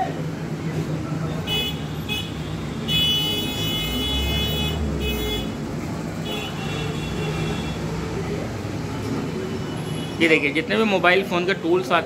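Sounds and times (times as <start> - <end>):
low traffic rumble: 0.0 - 12.0
vehicle horns honking: 1.4 - 8.0, 9.5 - 10.4.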